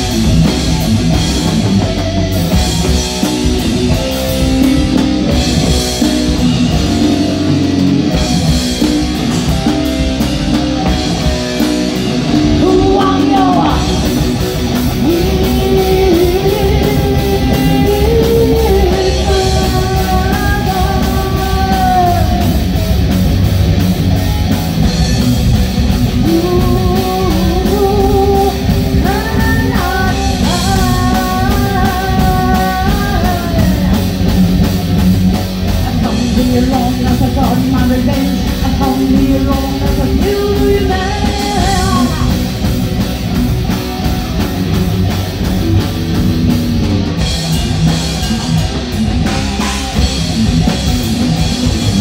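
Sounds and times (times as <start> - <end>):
bending lead guitar melody: 0.0 - 52.0
live rock band playing: 0.0 - 52.0.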